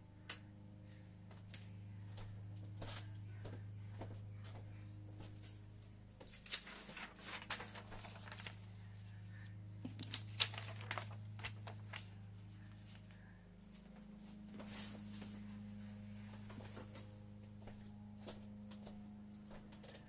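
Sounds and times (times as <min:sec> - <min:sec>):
steady low hum: 0:00.0 - 0:20.0
paper rustling and crinkling: 0:05.3 - 0:17.2.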